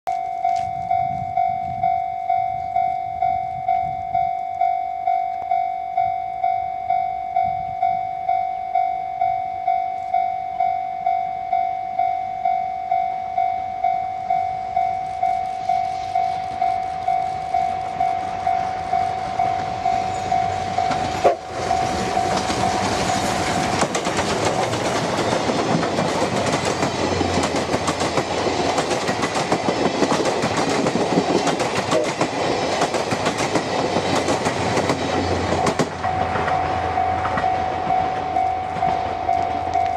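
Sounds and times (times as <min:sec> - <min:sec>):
level-crossing bell ringing: 0:00.1 - 0:23.8, 0:34.8 - 0:39.9
steam train passing: 0:13.2 - 0:39.9.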